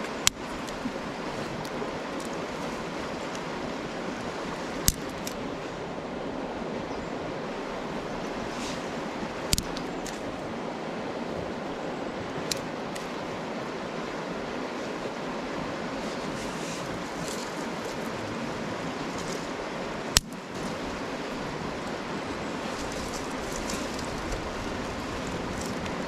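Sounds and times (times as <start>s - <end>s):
river water rushing: 0.0s - 26.0s
dry sticks clicking: 4.8s - 5.4s, 9.5s - 10.3s, 12.4s - 13.1s, 20.1s - 20.4s.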